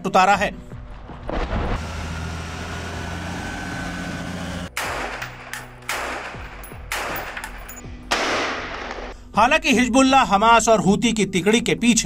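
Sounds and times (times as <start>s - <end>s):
rifle gunshot bursts: 4.7s - 9.2s.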